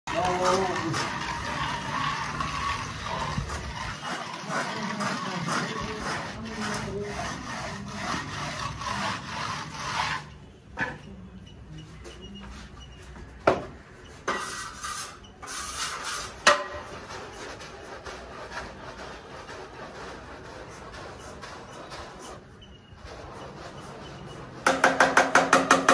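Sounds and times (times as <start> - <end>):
trowel scraping wet plaster: 0.1 - 10.6, 14.3 - 25.9
sharp knocks: 24.6 - 25.9.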